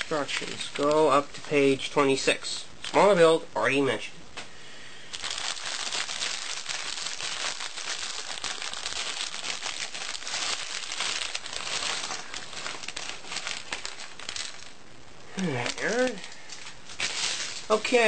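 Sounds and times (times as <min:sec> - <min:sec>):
plastic bag crinkling: 0:00.0 - 0:01.5, 0:05.1 - 0:14.8, 0:15.4 - 0:18.0.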